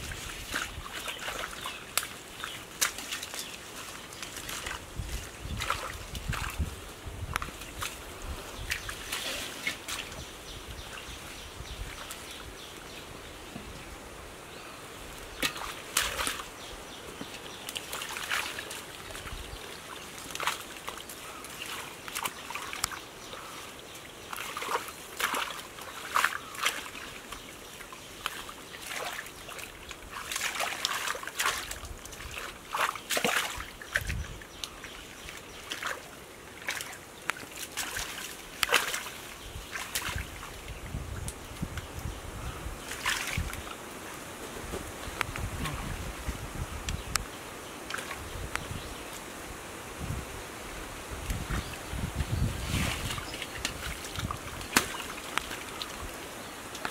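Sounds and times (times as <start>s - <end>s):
hands splashing in muddy water: 0.0s - 6.7s, 15.4s - 16.5s, 17.6s - 23.5s, 24.2s - 27.4s, 28.2s - 40.6s, 42.8s - 43.7s, 52.6s - 56.1s.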